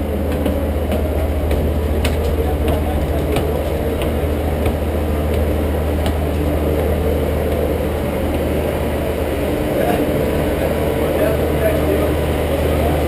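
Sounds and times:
footsteps on deck: 0.0s - 10.1s
ferry engines humming: 0.0s - 13.0s.

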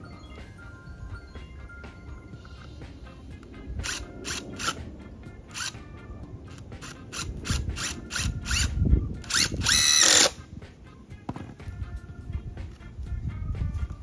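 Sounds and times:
background music: 0.0s - 14.0s
cordless drill whining: 3.8s - 4.8s, 5.5s - 5.8s, 6.5s - 10.4s.

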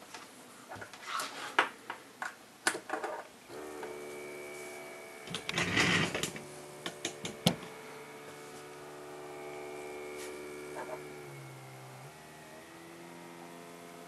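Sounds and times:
stepper motor whining: 3.5s - 14.0s.

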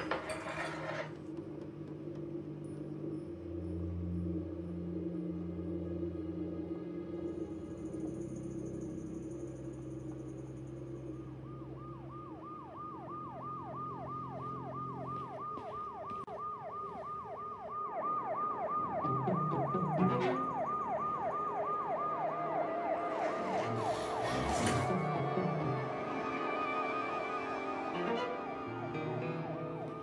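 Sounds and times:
siren yelping: 11.3s - 30.0s.

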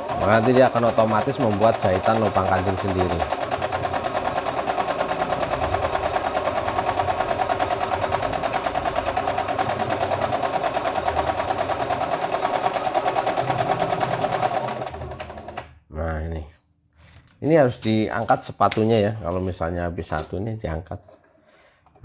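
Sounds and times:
sewing machine stitching: 0.0s - 15.8s.

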